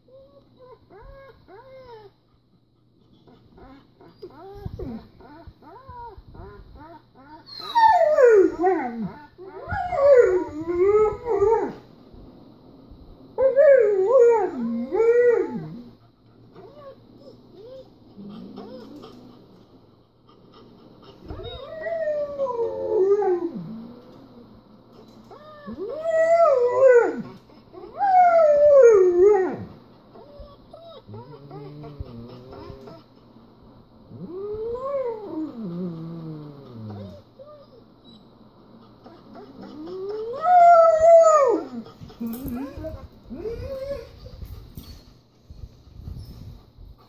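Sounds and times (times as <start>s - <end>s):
dog whining: 3.2s - 11.8s, 13.4s - 19.4s, 21.3s - 33.1s, 34.1s - 45.2s
dog howling: 3.6s - 11.8s, 13.4s - 16.0s, 21.3s - 24.5s, 25.2s - 33.0s, 34.1s - 37.8s, 39.0s - 44.2s.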